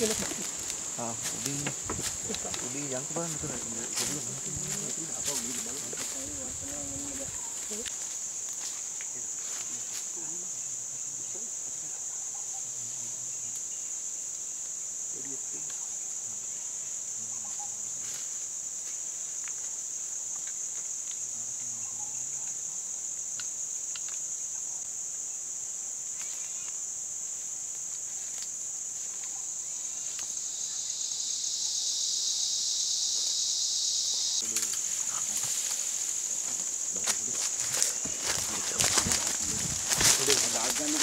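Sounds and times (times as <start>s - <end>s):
high-pitched insect chorus: 0.0s - 41.0s
lower insect buzz: 0.0s - 41.0s.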